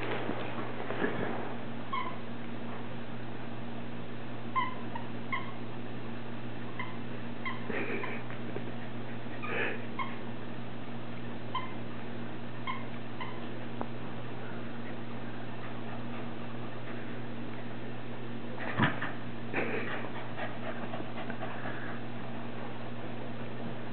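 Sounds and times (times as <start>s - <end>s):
rough noisy dog sounds: 6.7s - 10.3s, 18.6s - 23.4s.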